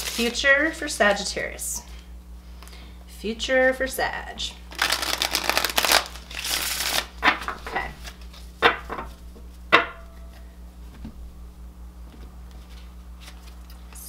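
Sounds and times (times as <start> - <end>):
cards shuffling: 0.0 - 0.4, 4.7 - 8.5, 12.6 - 14.0.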